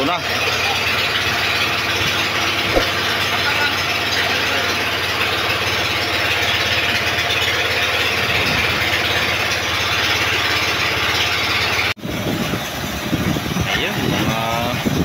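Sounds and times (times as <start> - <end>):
boat engine running: 0.0 - 15.0.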